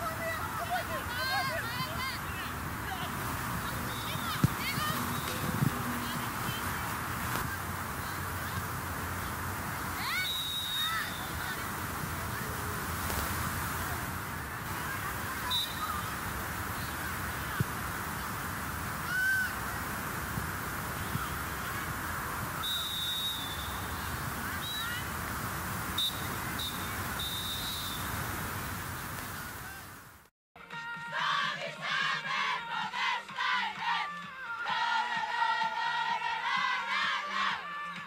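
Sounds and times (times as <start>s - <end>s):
outdoor background noise: 0.0s - 30.3s.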